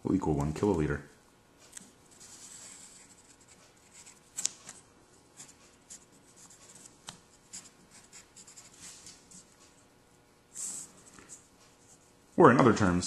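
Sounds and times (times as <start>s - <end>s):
pencil scratching on paper: 2.2s - 4.2s, 5.4s - 9.6s.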